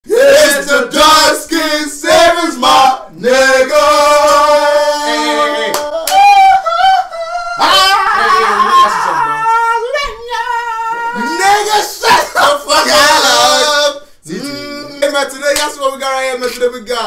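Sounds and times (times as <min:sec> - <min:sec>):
men singing together: 0:00.1 - 0:06.1.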